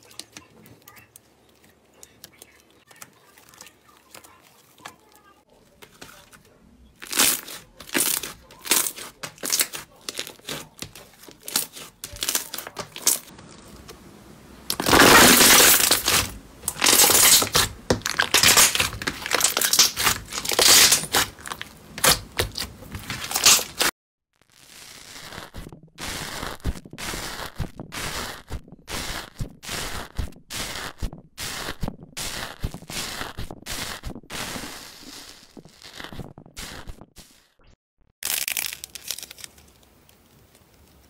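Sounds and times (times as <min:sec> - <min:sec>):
slime popping and crackling: 0:07.0 - 0:13.3, 0:14.7 - 0:37.1, 0:38.2 - 0:40.6.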